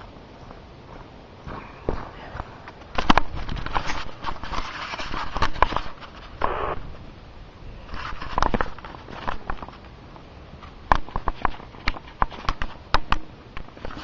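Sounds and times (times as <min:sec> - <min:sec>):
shuffling and rustling: 0:00.0 - 0:07.1, 0:07.8 - 0:12.9.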